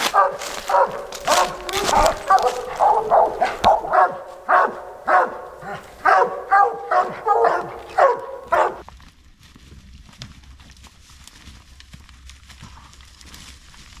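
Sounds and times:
dogs barking: 0.0 - 8.8.

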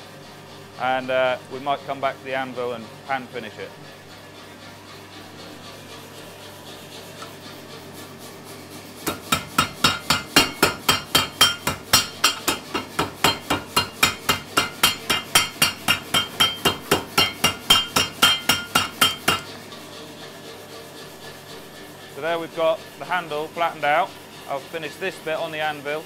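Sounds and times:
power hammer striking hot steel: 9.0 - 19.5.

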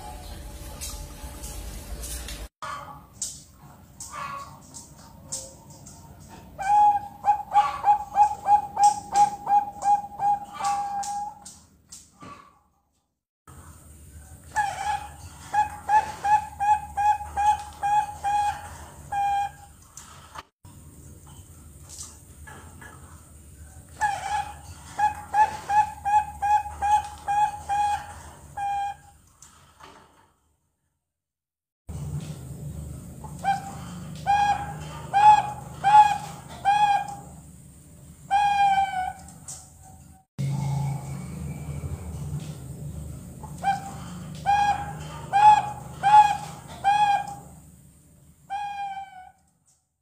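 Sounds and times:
dove cooing: 6.4 - 11.4, 14.5 - 19.7, 23.9 - 29.1, 33.2 - 37.4, 38.3 - 39.4, 43.4 - 47.6.

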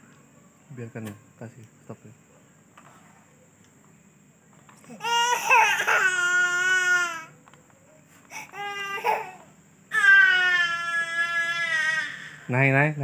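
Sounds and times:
baby crying: 4.8 - 7.4, 8.3 - 12.5.

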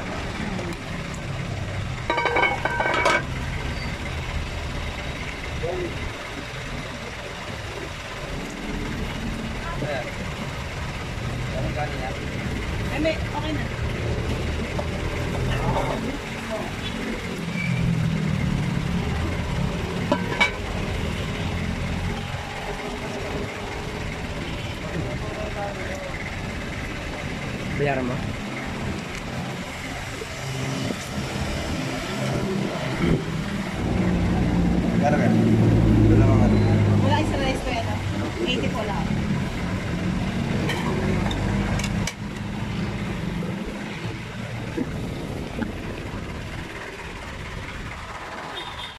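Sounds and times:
low engine rumble: 0.0 - 48.6
street traffic: 0.0 - 48.9
metal lid clanking on pot: 2.1 - 3.3, 20.1 - 20.6.

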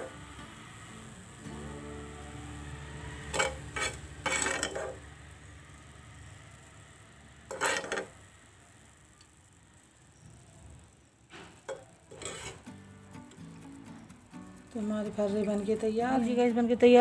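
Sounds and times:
spoon clinking and scraping on plate: 3.3 - 5.0, 7.5 - 8.1, 11.7 - 12.7.

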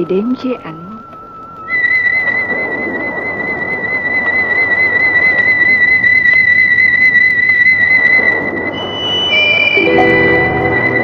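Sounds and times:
high whistle-like note: 0.0 - 11.0
steady rushing noise: 0.0 - 11.0
orchestral instruments: 9.4 - 11.0.

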